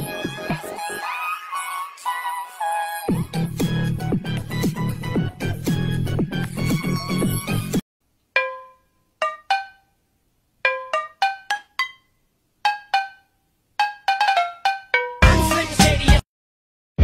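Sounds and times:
dance music: 0.0s - 1.6s, 15.2s - 16.2s.

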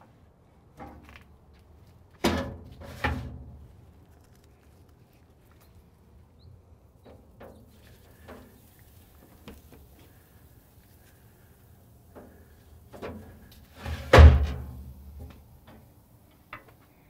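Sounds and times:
smoker door creaking: 13.0s - 15.4s.

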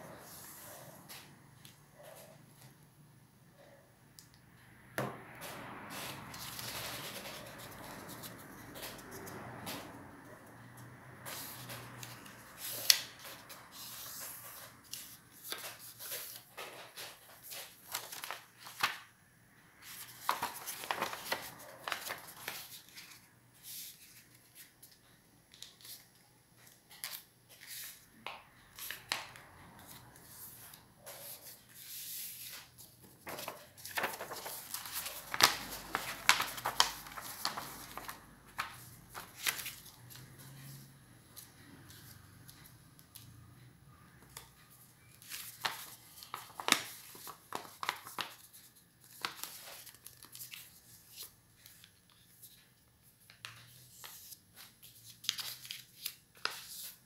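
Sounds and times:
paper rustling and crackling: 5.9s - 9.9s, 11.3s - 19.1s, 19.8s - 28.0s, 28.8s - 40.7s, 45.2s - 52.6s, 53.2s - 57.0s.

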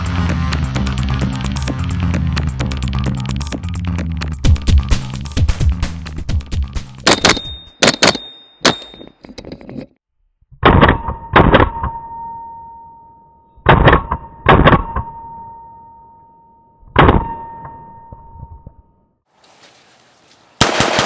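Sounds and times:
rifle shots: 7.0s - 8.8s, 20.6s - 21.0s
metallic ringing tone: 11.1s - 13.6s, 14.2s - 19.1s.

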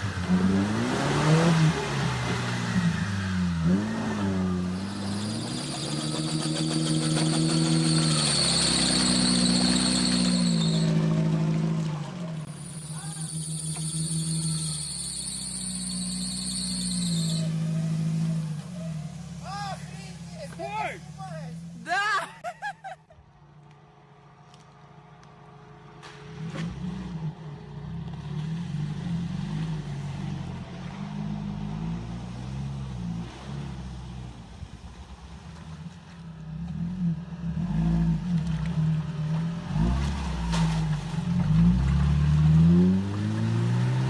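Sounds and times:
off-road engine revving: 0.0s - 21.8s, 36.6s - 44.0s.

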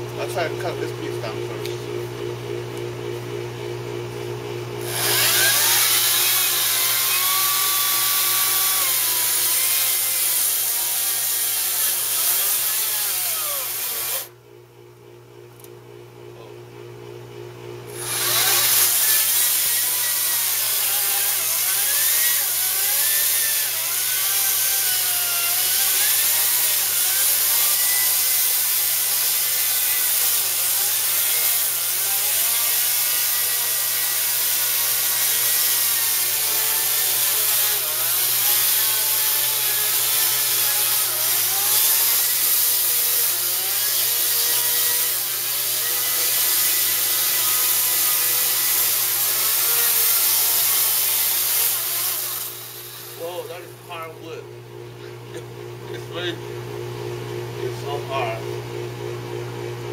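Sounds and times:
electric chainsaw cutting wood: 4.8s - 14.3s, 17.9s - 54.2s.

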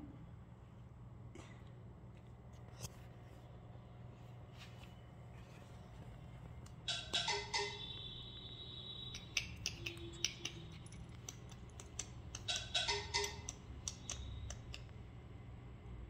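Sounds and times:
collar bell jingling: 9.9s - 11.8s.

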